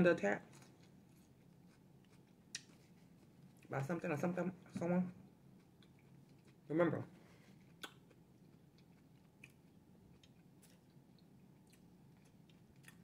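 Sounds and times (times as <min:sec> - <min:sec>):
chewing and mouth sounds: 0:00.5 - 0:03.7, 0:05.2 - 0:06.7, 0:07.5 - 0:13.0.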